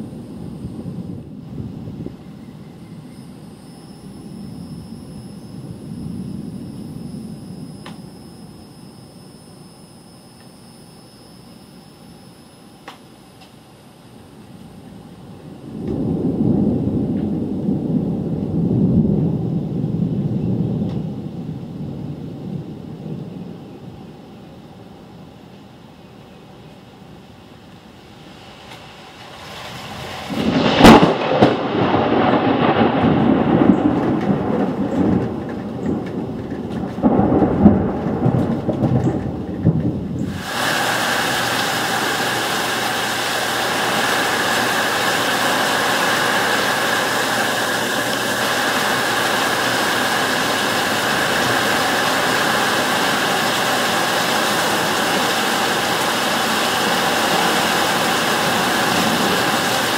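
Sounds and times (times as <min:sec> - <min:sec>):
rolling thunder rumbles: 0:00.0 - 0:08.8, 0:15.2 - 0:24.5, 0:29.3 - 0:59.9
heavy rain pouring: 0:00.0 - 0:10.4, 0:14.1 - 0:23.6, 0:27.8 - 0:59.9
thunderclap: 0:15.7 - 0:23.3, 0:29.6 - 0:40.9, 0:57.0 - 0:59.9.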